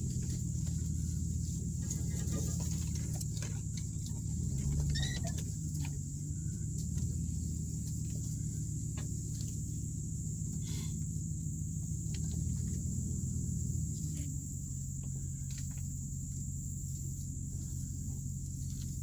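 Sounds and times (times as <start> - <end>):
truck engine rumble: 0.0 - 19.0
high squeaks: 4.6 - 5.5.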